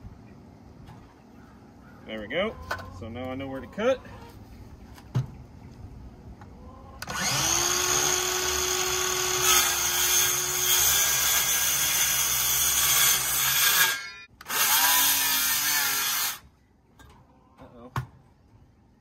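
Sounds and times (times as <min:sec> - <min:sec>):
circular saw cutting wood: 0:07.0 - 0:16.4.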